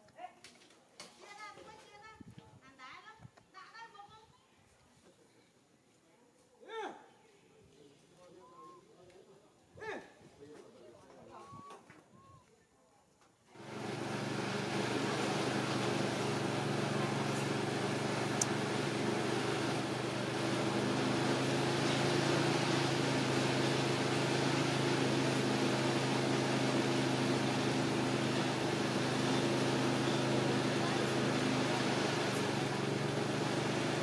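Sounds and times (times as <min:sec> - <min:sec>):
motor humming: 0:13.6 - 0:34.0.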